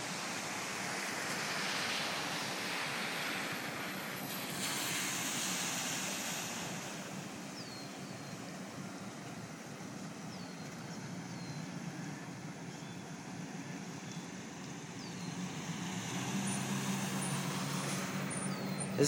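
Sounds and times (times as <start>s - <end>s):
tyres hissing through floodwater: 0.0s - 19.0s
low engine hum: 6.3s - 19.0s.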